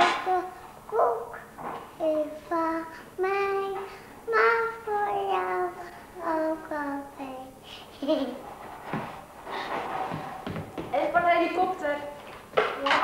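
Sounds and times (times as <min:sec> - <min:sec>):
young child singing: 0:00.0 - 0:07.6.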